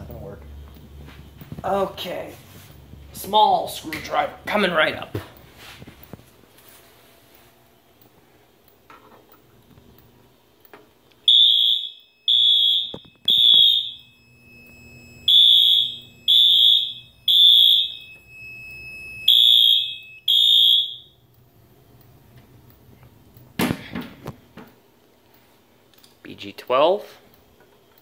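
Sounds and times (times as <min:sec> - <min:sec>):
fire alarm beeping: 0:11.2 - 0:21.4
faint steady high tone: 0:12.0 - 0:19.3.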